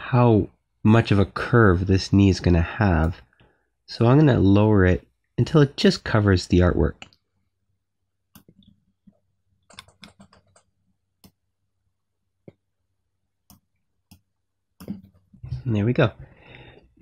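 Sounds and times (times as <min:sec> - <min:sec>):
computer mouse clicks: 0:08.3 - 0:11.4.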